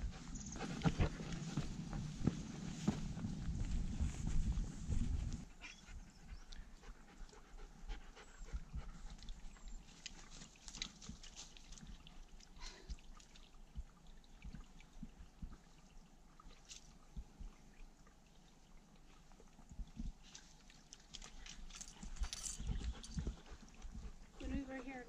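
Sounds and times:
dog panting: 0.0 - 1.7, 5.4 - 9.3, 22.0 - 25.0
low rumble: 0.0 - 5.6.

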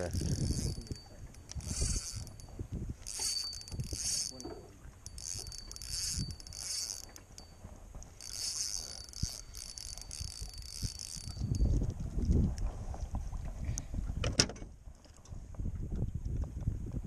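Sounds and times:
fishing reel gears whirring: 0.0 - 12.7.

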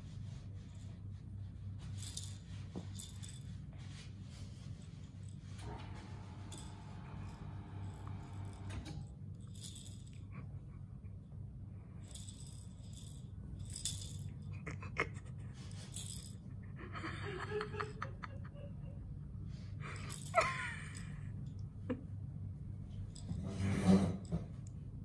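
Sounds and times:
rattle jingling in toy ball: 0.0 - 5.6, 6.5 - 6.7, 9.3 - 10.7, 11.9 - 16.8, 19.9 - 21.6, 23.0 - 23.5
low steady hum: 0.0 - 25.0.

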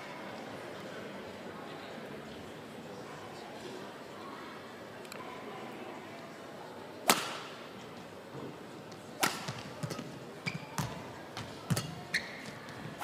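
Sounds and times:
racket striking shuttlecock: 7.0 - 7.6, 9.2 - 12.2
shoes squeaking on court floor: 9.5 - 13.0.

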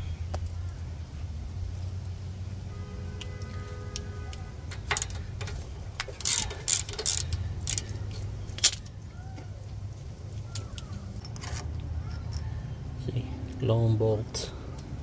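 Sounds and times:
socket ratchet clicking: 4.7 - 8.9.

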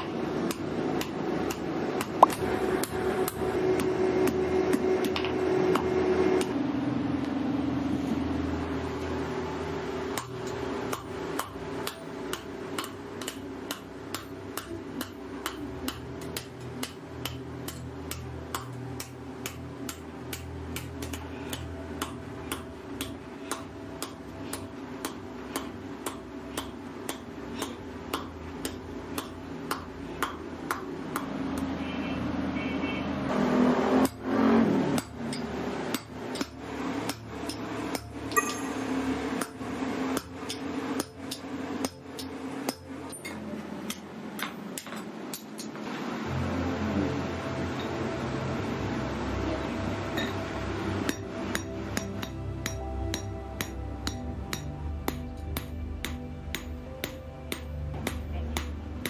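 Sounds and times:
low hum: 0.0 - 59.0
hammer striking metal on anvil: 10.1 - 31.7, 34.0 - 45.8, 50.2 - 50.4, 51.0 - 58.8.

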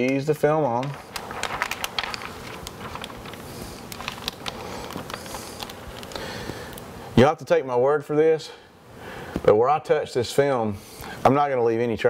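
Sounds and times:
film crackling on glass: 0.0 - 6.9
hands rustling over film: 0.0 - 6.9.

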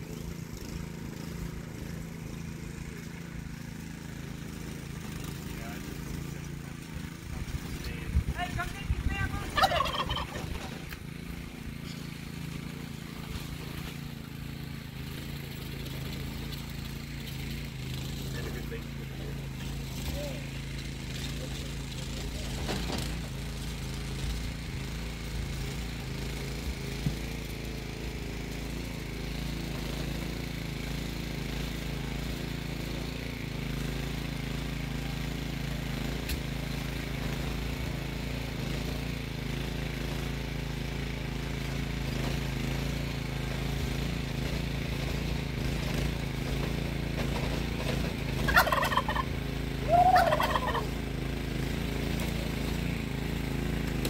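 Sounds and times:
rototiller engine running: 0.0 - 54.0
chicken calling: 9.4 - 10.7, 48.5 - 51.0.

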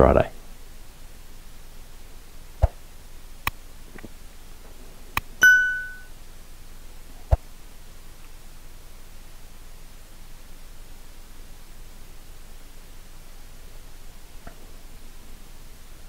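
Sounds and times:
short bell-like ding: 5.4 - 6.1.

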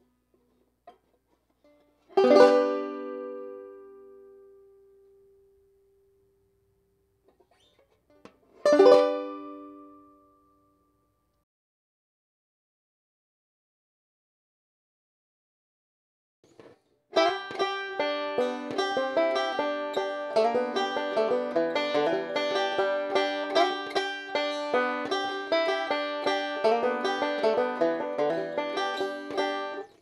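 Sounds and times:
banjo picked in fast notes: 2.1 - 4.0, 8.6 - 10.1, 17.1 - 30.0.

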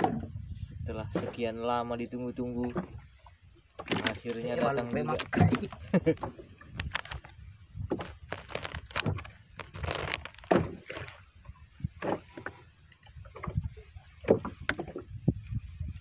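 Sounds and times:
knocks and rustles of handling: 5.2 - 11.2
thumps against boat hull: 14.2 - 15.1.

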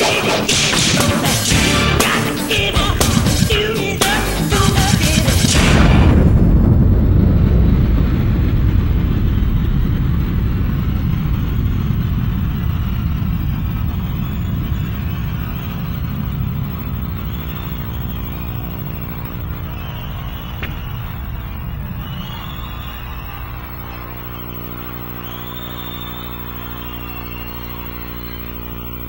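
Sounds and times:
stadium crowd cheering: 0.0 - 29.0
band chord: 0.8 - 4.6
faint held tone: 13.8 - 29.0.

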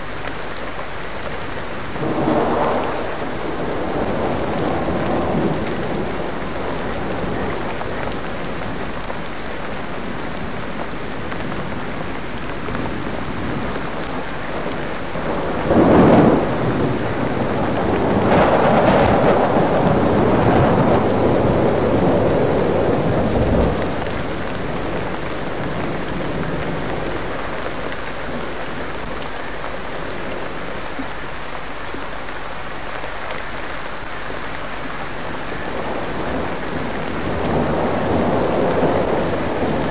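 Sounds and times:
heavy rain falling: 0.0 - 39.9
thunder cracking and rolling: 2.0 - 9.1, 12.8 - 27.3, 35.7 - 39.9.

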